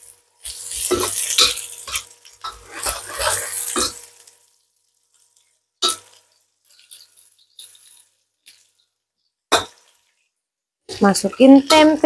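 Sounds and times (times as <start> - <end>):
food sizzling in a wok: 0.0 - 12.0
metal spatula scraping wok: 0.4 - 4.3.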